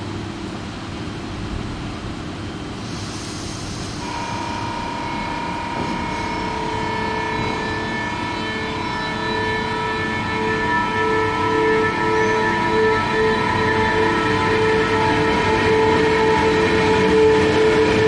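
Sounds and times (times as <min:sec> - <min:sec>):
locomotive whine: 0:00.6 - 0:18.0
air hiss: 0:02.8 - 0:04.7.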